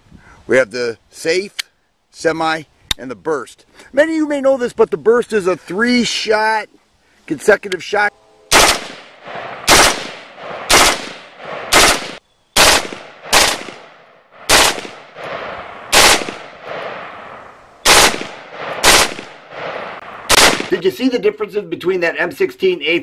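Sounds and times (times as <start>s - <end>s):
rifle shots echoing: 8.5s - 20.9s.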